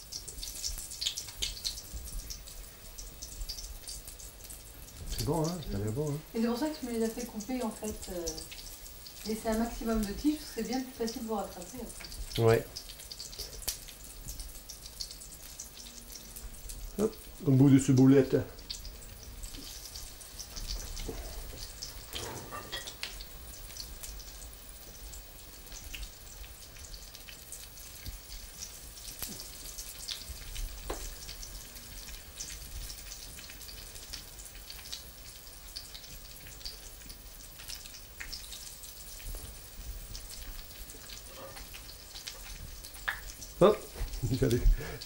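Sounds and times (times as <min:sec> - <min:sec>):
food frying in hot oil: 0:00.0 - 0:45.0.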